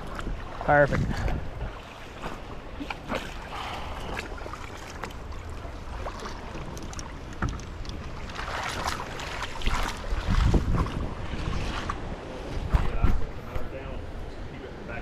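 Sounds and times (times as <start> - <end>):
water splashing and lapping: 0.0 - 15.0
wind rumble on microphone: 0.0 - 15.0.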